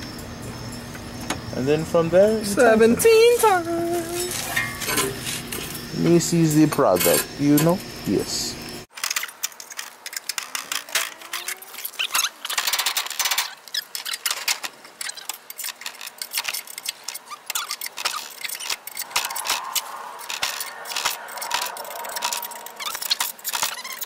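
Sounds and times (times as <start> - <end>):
jack clicking and rattling: 8.9 - 24.0
faint rising squeak: 16.2 - 24.0.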